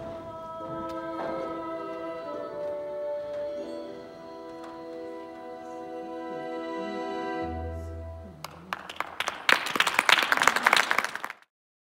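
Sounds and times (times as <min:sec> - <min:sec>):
audience applause: 0:08.4 - 0:11.5.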